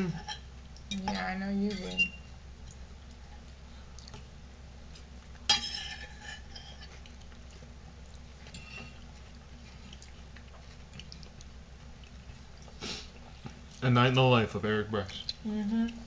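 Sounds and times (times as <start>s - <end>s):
low steady hum: 0.0s - 16.0s
cutlery clinking against a dish: 5.5s - 6.9s, 8.5s - 9.0s.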